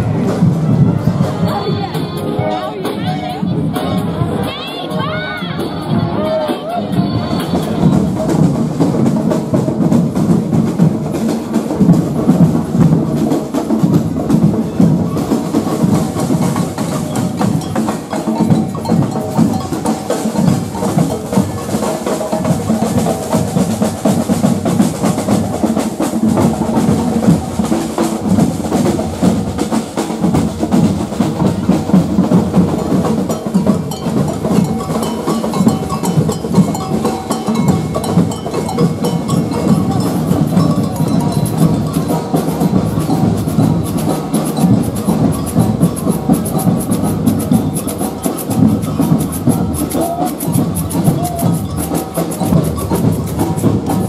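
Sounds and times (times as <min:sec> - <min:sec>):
bass drums: 0:00.0 - 0:54.0
snare drums: 0:00.0 - 0:54.0.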